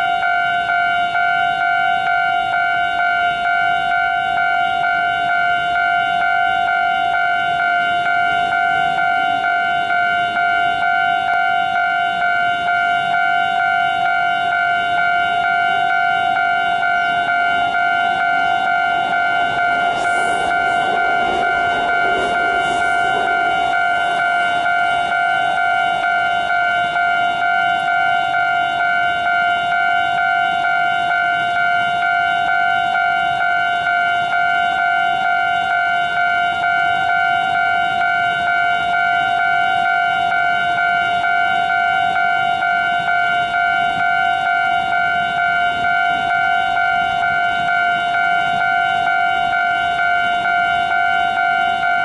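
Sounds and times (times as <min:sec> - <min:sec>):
level crossing warning bell: 0:00.0 - 0:52.0
train rumble: 0:17.6 - 0:26.9.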